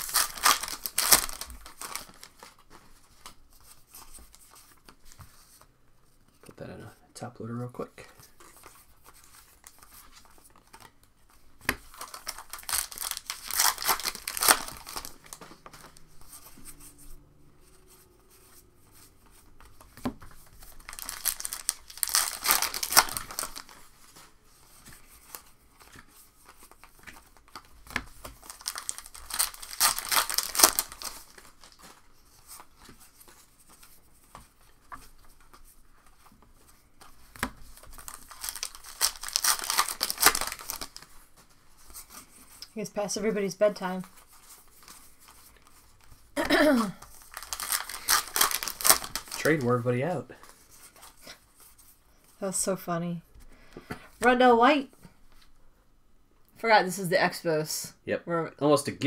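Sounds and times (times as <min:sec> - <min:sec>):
wrappers tearing and crinkling: 0:00.0 - 0:04.8, 0:11.6 - 0:16.8, 0:19.6 - 0:33.9, 0:37.0 - 0:51.5
cards handled: 0:08.2 - 0:17.0, 0:17.6 - 0:42.7, 0:44.0 - 0:49.8.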